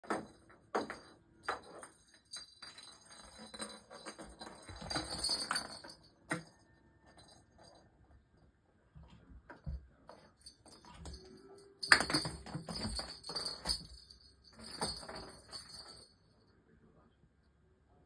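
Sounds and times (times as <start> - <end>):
light clinking and jingling: 0.0 - 8.5, 9.5 - 16.7
toys tapping on tile floor: 9.5 - 15.9.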